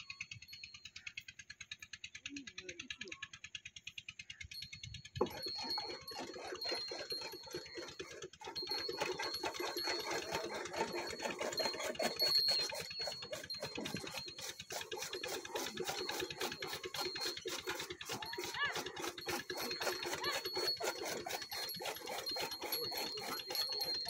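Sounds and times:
gear teeth clattering: 0:05.2 - 0:24.0.

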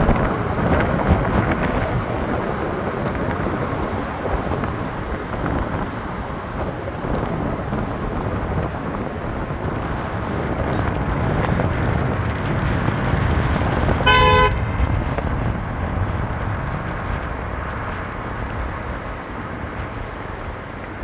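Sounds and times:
street traffic rumbling: 0:00.0 - 0:21.0
car horn toot: 0:14.0 - 0:14.8.

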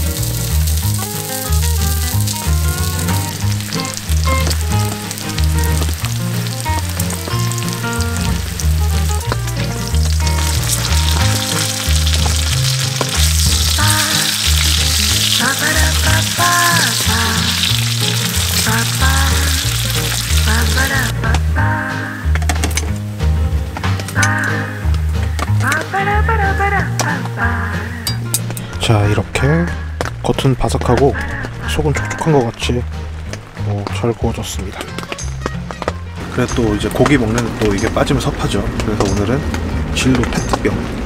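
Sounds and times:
pork sizzling on a griddle: 0:00.0 - 0:21.1
background music with bass line: 0:00.0 - 0:41.0.

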